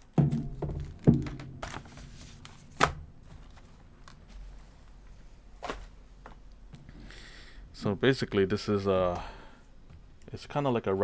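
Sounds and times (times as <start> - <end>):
cardboard box knocks and thumps: 0.2 - 2.1.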